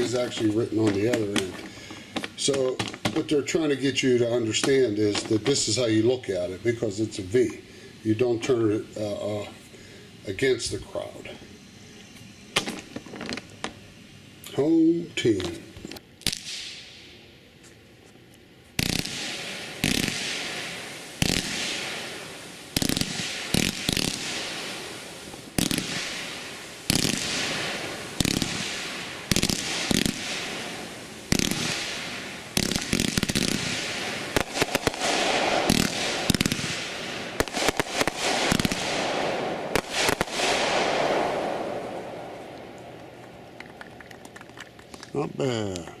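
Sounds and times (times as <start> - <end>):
crackling firework reports: 0.0 - 17.4, 18.4 - 46.0
firework bangs with rumble: 18.8 - 42.4.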